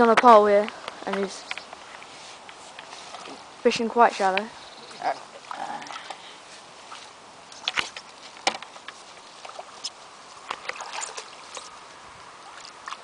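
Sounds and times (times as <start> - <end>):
fish splashing at water surface: 6.9 - 11.8.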